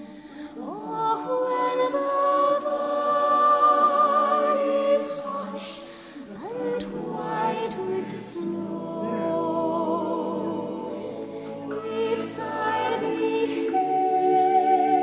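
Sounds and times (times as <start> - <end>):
slow soft background music: 0.0 - 15.0.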